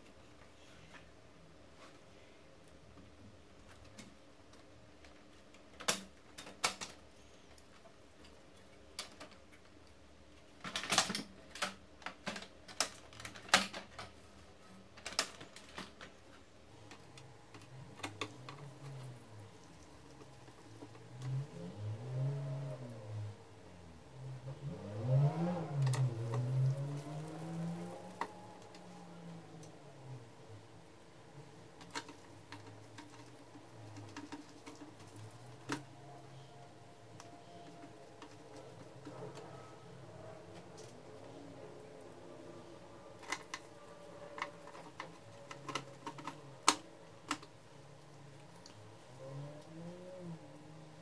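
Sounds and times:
plastic printer parts clicking: 0:03.6 - 0:21.5, 0:31.5 - 0:41.4, 0:43.1 - 0:47.6.

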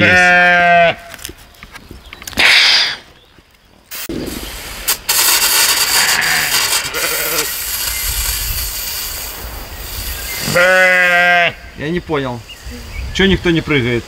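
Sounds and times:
sheep bleating: 0:00.0 - 0:01.1, 0:05.9 - 0:07.6, 0:10.5 - 0:11.7
water hissing from hose nozzle: 0:03.9 - 0:10.8.

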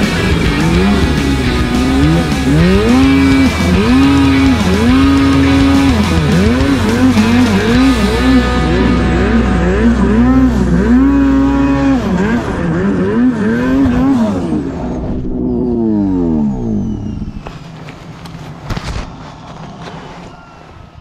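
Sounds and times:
snowmobile engine revving: 0:00.0 - 0:17.8.

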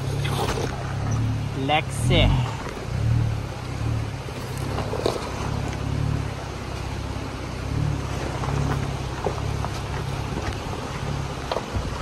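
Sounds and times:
engine running at low revs: 0:00.0 - 0:12.0
faint knocks of rock under tyres: 0:04.3 - 0:05.9, 0:08.2 - 0:12.0.

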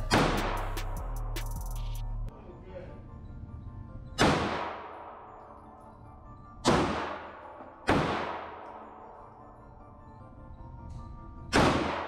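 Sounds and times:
handgun shots echoing indoors: 0:04.1 - 0:05.8, 0:06.6 - 0:09.4, 0:11.0 - 0:12.0.

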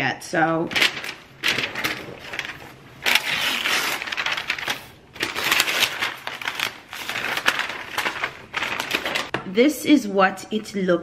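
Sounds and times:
cardboard and paper tearing: 0:00.8 - 0:09.3.

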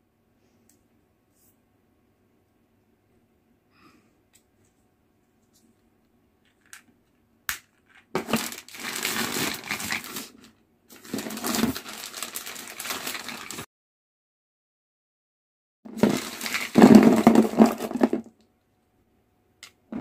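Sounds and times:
plastic bags crinkling: 0:08.1 - 0:13.7, 0:15.9 - 0:18.3.

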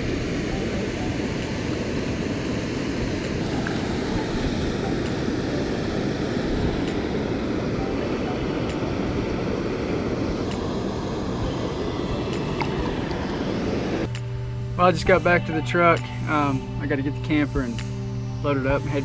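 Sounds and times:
low rush of flowing water: 0:00.0 - 0:14.1.

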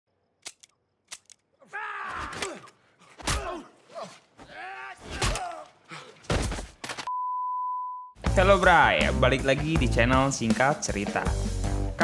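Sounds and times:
sharp clicks: 0:00.4 - 0:01.5.

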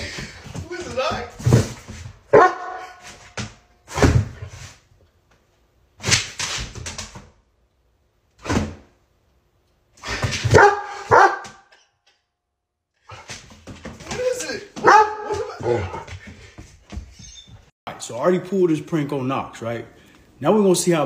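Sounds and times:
dog barking: 0:02.3 - 0:03.0, 0:10.5 - 0:11.7, 0:14.8 - 0:16.0.

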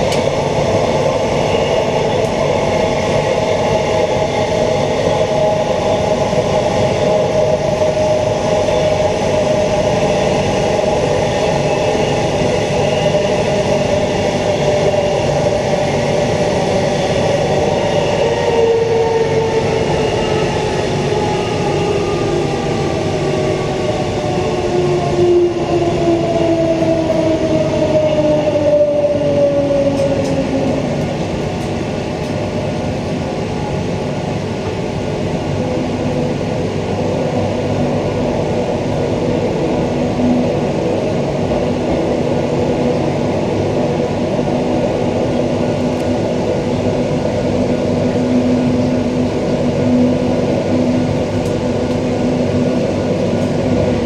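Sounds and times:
train wheels on rails: 0:00.0 - 0:54.0.

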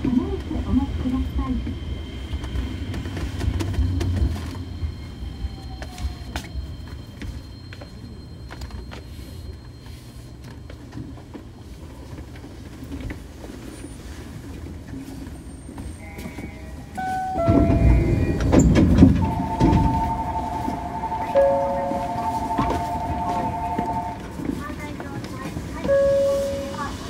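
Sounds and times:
train low rumble: 0:00.0 - 0:27.0.

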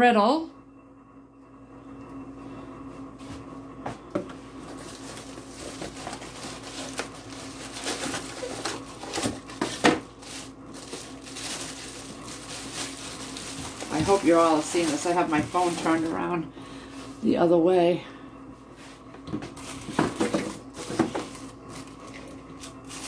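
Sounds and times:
cardboard box rustling: 0:04.6 - 0:16.1
plastic bag crinkling: 0:04.6 - 0:16.4, 0:19.6 - 0:23.0.

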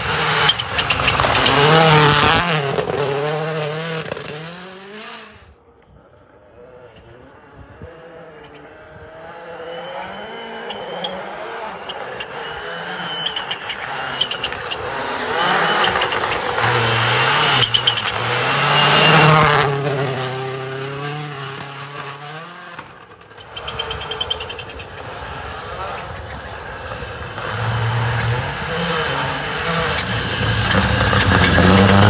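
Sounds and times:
rally car engine revving: 0:00.0 - 0:05.6, 0:06.5 - 0:32.0.

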